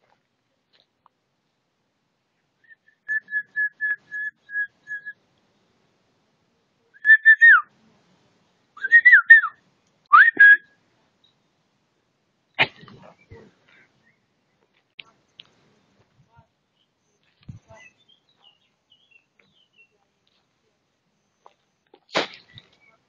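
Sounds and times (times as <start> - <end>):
person whistling notes: 10.1 - 10.6.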